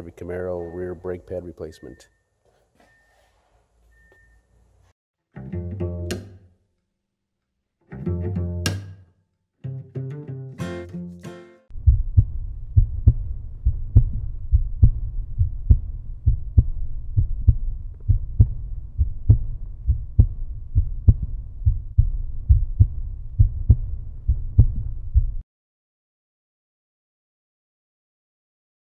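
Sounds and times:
deep thudding heartbeat beat: 11.7 - 25.4.

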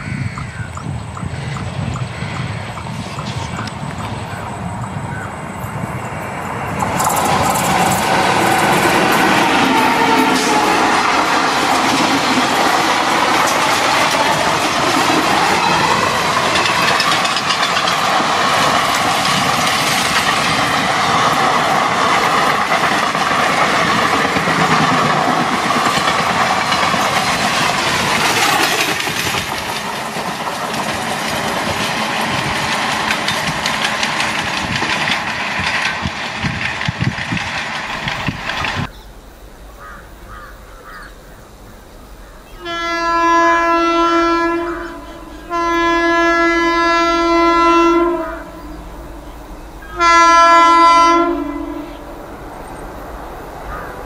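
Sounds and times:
train rushing past: 0.0 - 39.0, 42.5 - 54.0
wheels clickety-clack: 6.5 - 38.9.

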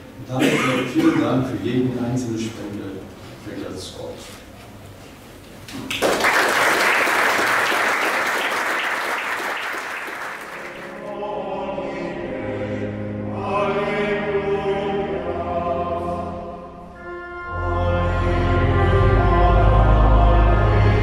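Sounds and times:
audience applause: 5.9 - 11.0
choir singing slow chant: 10.7 - 16.9, 17.6 - 21.0.

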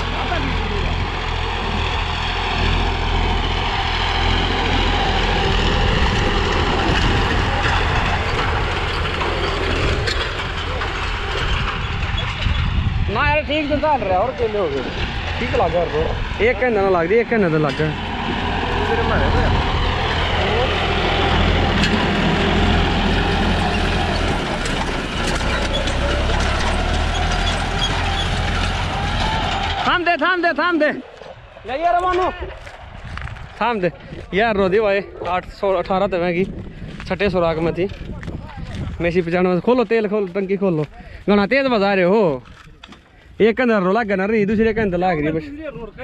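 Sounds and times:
tractor diesel engine running: 0.0 - 41.5.

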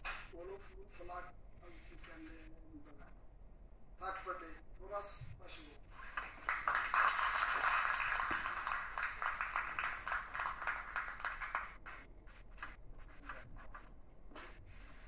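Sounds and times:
audience applauding: 6.1 - 12.1.

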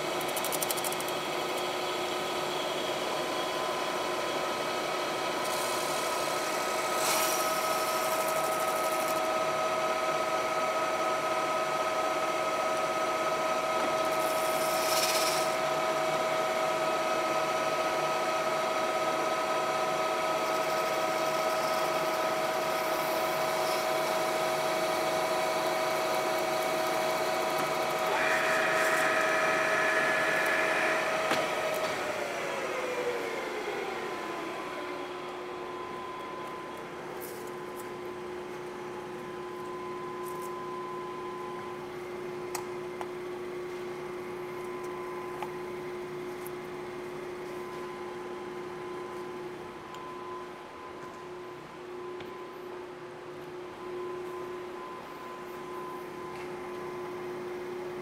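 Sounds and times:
boring mill gear whine: 0.0 - 58.0
higher tone: 28.1 - 32.1.

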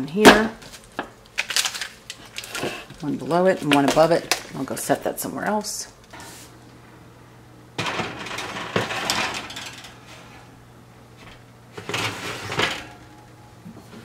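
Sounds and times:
baking sheets scraping on oven racks: 7.8 - 10.5, 11.7 - 13.0.

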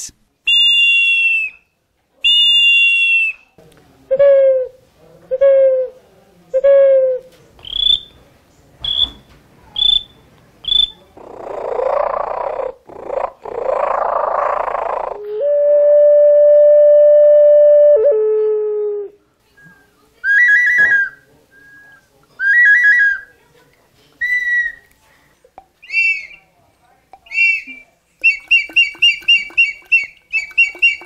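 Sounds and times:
ceramic whistles: 0.5 - 3.5, 7.6 - 8.2, 8.8 - 11.0, 19.6 - 23.4, 24.2 - 24.9, 25.8 - 26.6, 27.2 - 31.0.

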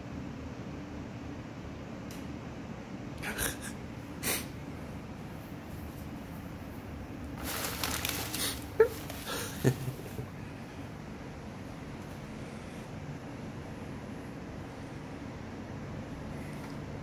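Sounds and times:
packing paper crinkling: 7.2 - 10.1.

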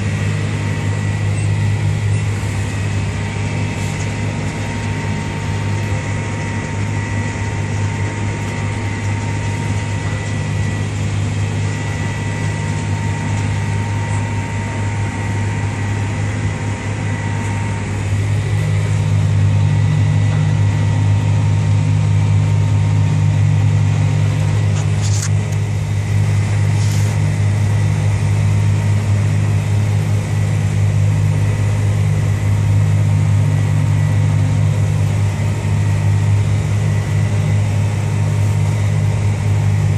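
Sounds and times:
tractor and harvester droning: 0.0 - 39.9.

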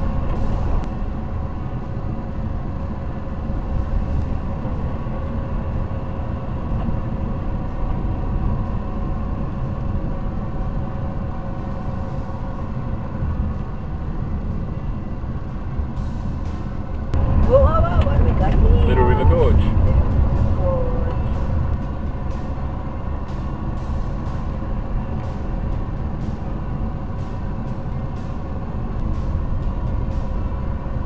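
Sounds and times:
car engine and road noise: 0.0 - 31.0.

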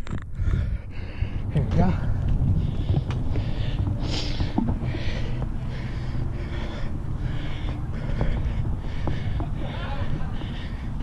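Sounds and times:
wind rushes: 0.0 - 8.9
drone propellers rumbling: 0.0 - 11.0.

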